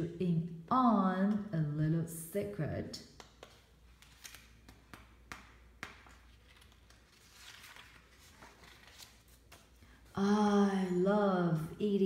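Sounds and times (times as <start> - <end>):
page turning rustle: 3.2 - 5.1, 5.9 - 9.8.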